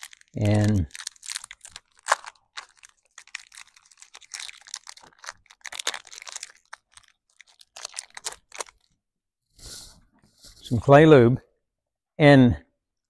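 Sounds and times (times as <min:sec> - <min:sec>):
plastic wrapper crinkling: 0:00.0 - 0:09.0.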